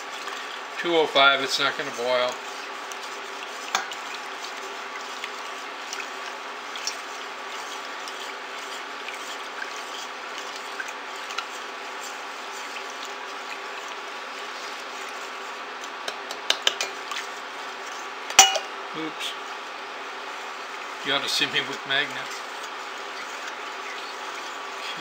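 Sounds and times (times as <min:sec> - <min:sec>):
gritty swishing of stirring: 0:00.0 - 0:18.5, 0:19.3 - 0:25.0
induction cooker hum: 0:00.0 - 0:25.0
spatula clicking against pot: 0:16.0 - 0:17.0.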